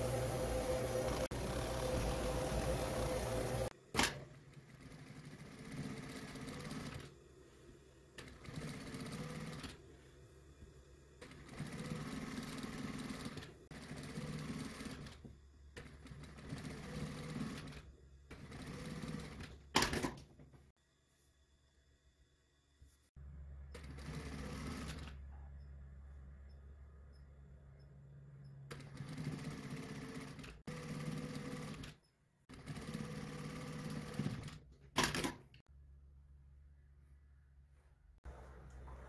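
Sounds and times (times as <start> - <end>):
overlock machine running: 0.0 - 3.7
sewing machine stitching: 0.0 - 7.1, 8.2 - 9.8, 11.2 - 20.2, 23.7 - 25.3, 28.6 - 35.4.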